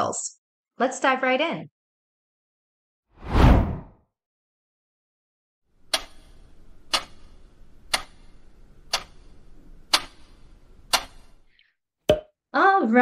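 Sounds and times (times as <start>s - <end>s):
clock ticking: 5.9s - 9.3s, 9.9s - 11.3s.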